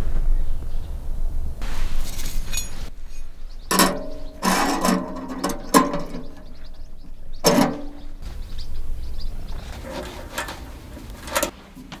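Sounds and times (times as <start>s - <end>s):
metallic clanks ringing: 2.5s - 8.2s.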